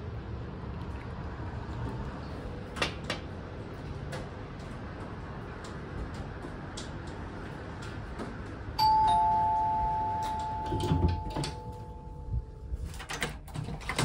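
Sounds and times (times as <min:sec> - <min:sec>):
two-note door chime: 0:08.8 - 0:12.7.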